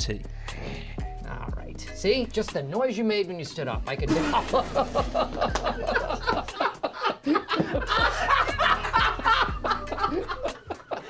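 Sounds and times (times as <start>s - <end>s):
background music with beat: 0.0s - 11.0s
people stifling laughter: 4.2s - 11.0s.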